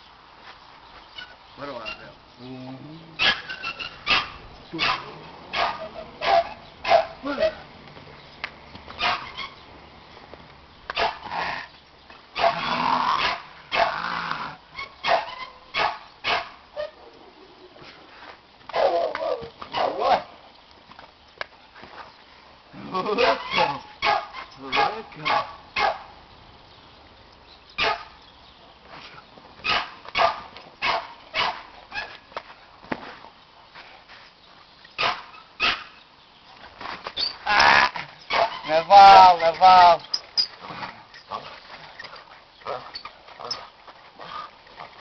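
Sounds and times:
dog barking: 0:04.0 - 0:07.6, 0:09.0 - 0:09.3, 0:11.0 - 0:11.2, 0:12.4 - 0:14.0, 0:15.0 - 0:16.6, 0:19.8 - 0:20.2, 0:23.2 - 0:26.1, 0:27.8 - 0:28.1, 0:29.6 - 0:32.2, 0:35.0 - 0:35.9, 0:38.3 - 0:38.6
dog growling and barking: 0:12.4 - 0:17.4.

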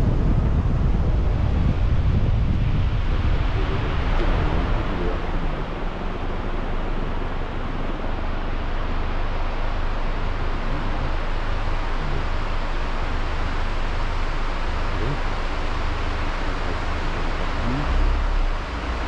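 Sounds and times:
wind on microphone rumbling: 0:00.0 - 0:12.6.

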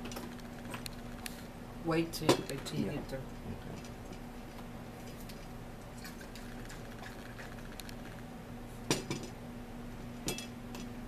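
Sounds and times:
steady low hum: 0:00.0 - 0:11.0
tableware clatter: 0:10.2 - 0:10.9.

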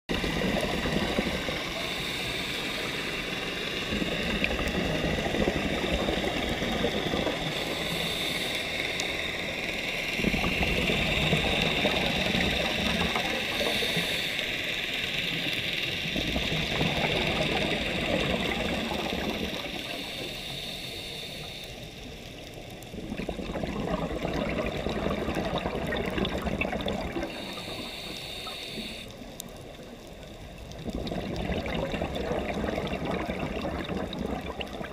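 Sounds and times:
exhaled bubbles rushing: 0:00.1 - 0:02.0, 0:03.8 - 0:08.0, 0:10.2 - 0:14.0, 0:16.0 - 0:20.0, 0:22.9 - 0:27.8, 0:30.5 - 0:34.9
steady high hiss: 0:01.4 - 0:04.8, 0:07.4 - 0:16.2, 0:17.2 - 0:22.9, 0:27.3 - 0:30.6.

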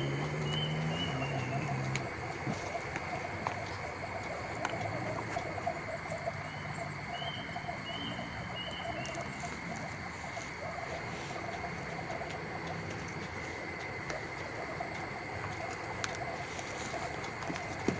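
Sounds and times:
chorus of calling animals: 0:00.0 - 0:17.9
faint clicks: 0:00.2 - 0:17.9.

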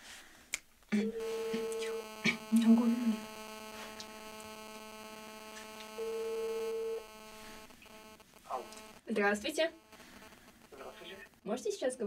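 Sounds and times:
steady electrical hum: 0:00.8 - 0:11.6
telephone ringback tone: 0:01.2 - 0:09.0.

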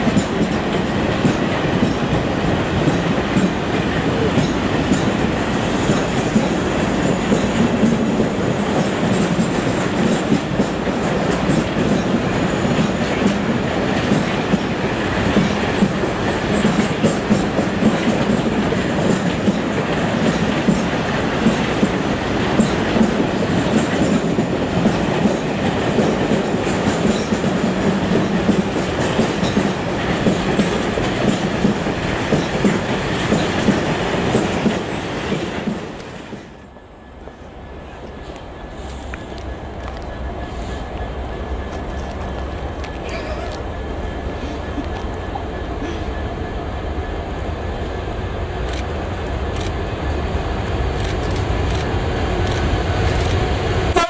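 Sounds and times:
wheels clicking over rail joints: 0:00.0 - 0:36.5
freight train wheels rumbling on rails: 0:00.0 - 0:54.0.

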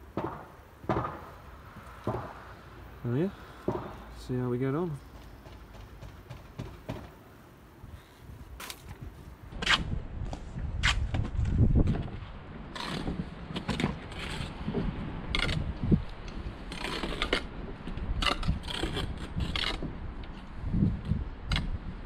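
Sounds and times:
trowel scraping mortar: 0:16.7 - 0:17.5, 0:18.2 - 0:19.8.

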